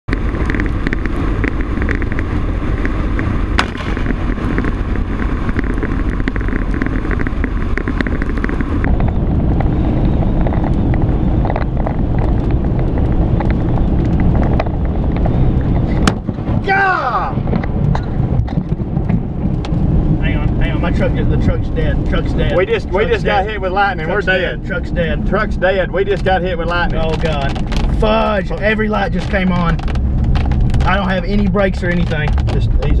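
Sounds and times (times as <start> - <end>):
road and wind noise: 0.0 - 33.0
raindrops ticking: 0.1 - 16.5, 17.5 - 33.0.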